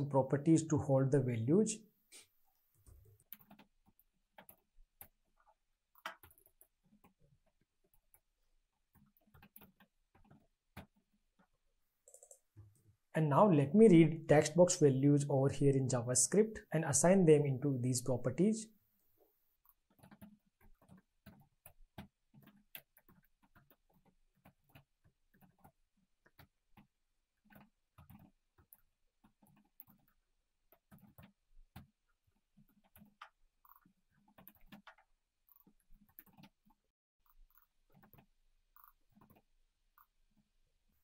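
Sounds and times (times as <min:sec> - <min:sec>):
keyboard typing: 0:02.8 - 0:12.6, 0:19.6 - 0:41.0.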